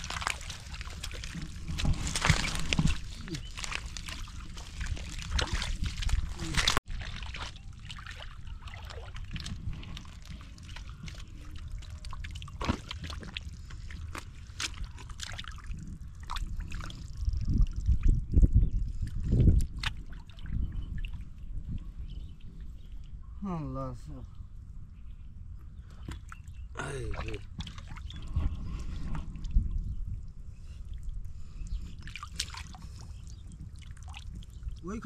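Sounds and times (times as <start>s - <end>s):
hands sloshing through muddy water: 0.0s - 17.1s, 26.0s - 29.5s, 31.9s - 35.0s
small splashes and wet squelches: 0.0s - 18.2s, 19.0s - 21.4s, 25.9s - 29.6s, 30.8s - 35.0s.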